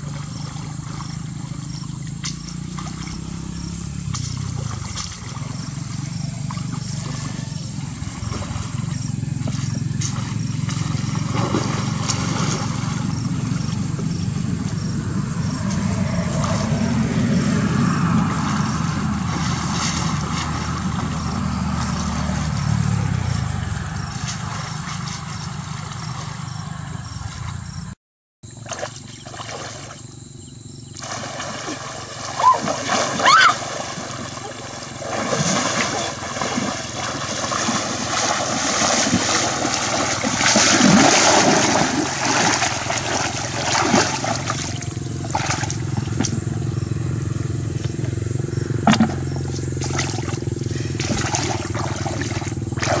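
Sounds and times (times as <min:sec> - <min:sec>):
water sloshing and splashing: 0:00.0 - 0:26.7, 0:28.5 - 0:30.0, 0:30.9 - 0:47.1, 0:47.7 - 0:53.0
steady low rumble: 0:00.0 - 0:28.0.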